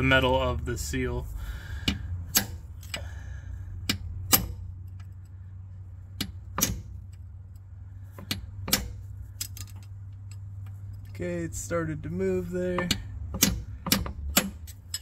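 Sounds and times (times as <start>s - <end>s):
hammer striking steel punch: 2.3s - 2.6s, 3.9s - 4.6s, 6.2s - 6.9s, 8.2s - 9.0s.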